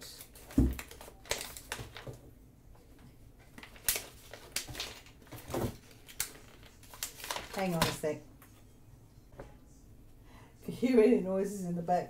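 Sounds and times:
paper packaging rustling: 0.0s - 2.2s, 2.9s - 8.2s.

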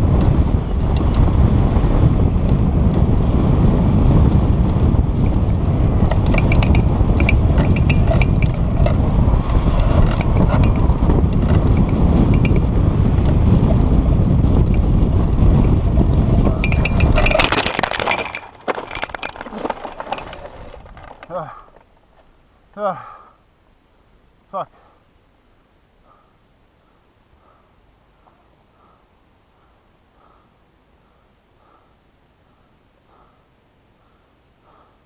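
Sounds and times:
wind buffeting microphone: 0.0s - 21.8s
microphone handling noise: 0.0s - 22.3s
faint ticks and rattles: 4.0s - 22.4s.

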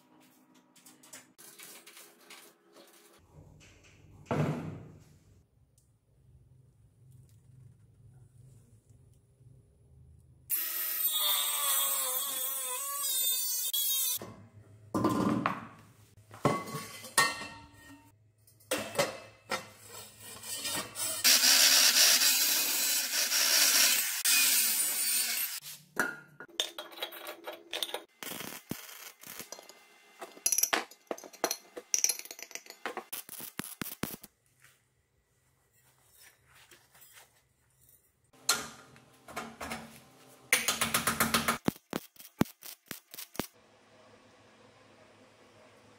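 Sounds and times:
metal parts knocking and clinking: 29.5s - 33.0s.

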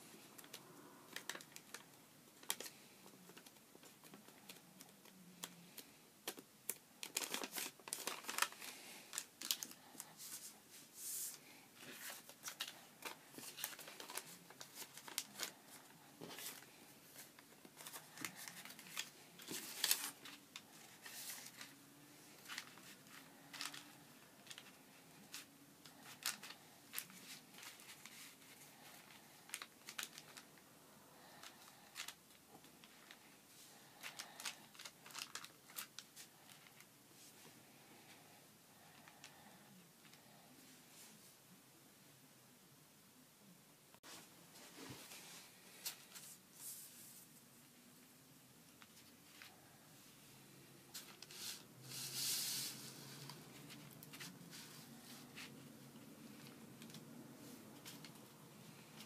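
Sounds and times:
paper rustling and crinkling: 0.4s - 30.5s, 31.2s - 37.4s, 50.9s - 59.0s.

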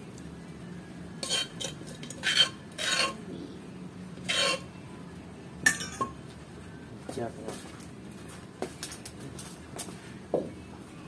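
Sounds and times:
metal spoon scraping steel bowl: 1.2s - 3.3s, 4.2s - 4.7s.

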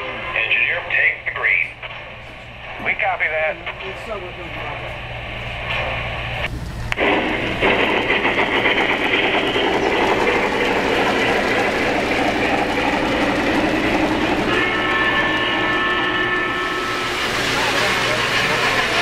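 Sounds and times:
steady tone: 1.2s - 19.0s
model train wheels clattering: 7.2s - 15.8s.

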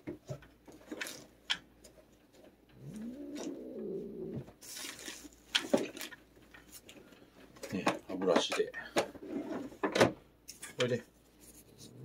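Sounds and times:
cat growling: 2.7s - 4.5s.

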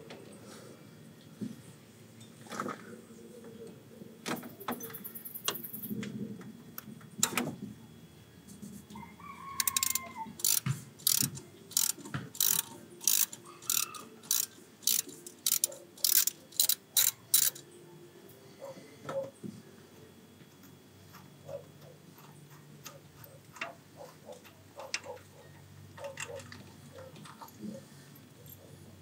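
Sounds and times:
ratchet wrench clicking: 9.6s - 17.6s.

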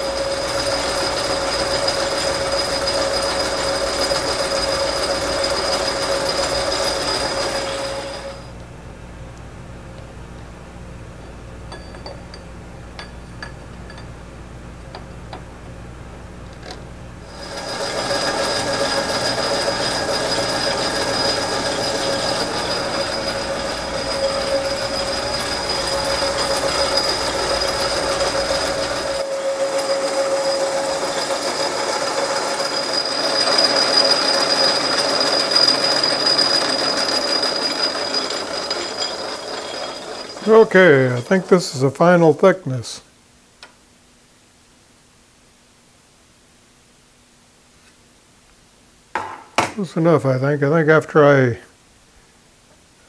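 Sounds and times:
lathe tool chattering squeal: 0.0s - 8.5s, 17.3s - 41.6s
metal cutting noise: 0.0s - 8.5s, 17.3s - 41.9s
lathe hum: 0.0s - 8.7s, 16.5s - 42.4s.

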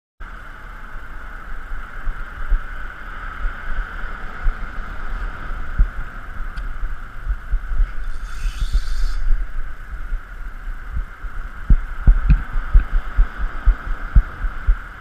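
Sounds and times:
low irregular thumps: 5.7s - 14.9s
fishing reel drag buzzing: 7.9s - 9.8s.

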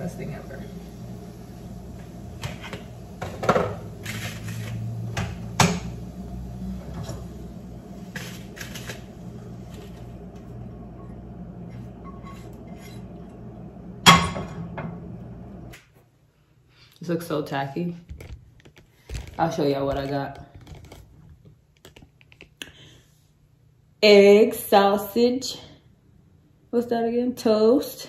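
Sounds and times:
steady low hum: 0.0s - 16.8s
utensil scraping pan: 2.4s - 5.0s, 11.6s - 13.3s.

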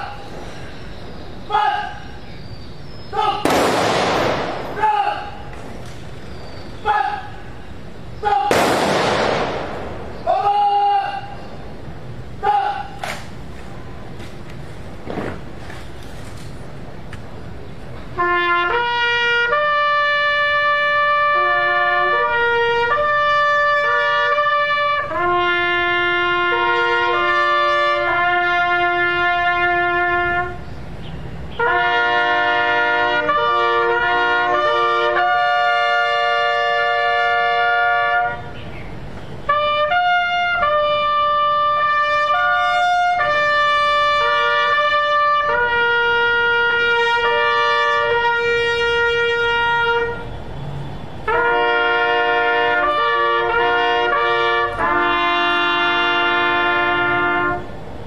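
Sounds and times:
trumpet playing bugle call: 18.1s - 30.6s, 31.5s - 38.6s, 39.4s - 50.4s, 51.2s - 57.8s.

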